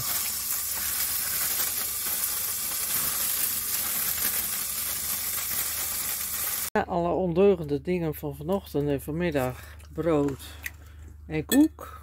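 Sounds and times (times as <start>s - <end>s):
food sizzling in a frying pan: 0.0s - 6.7s.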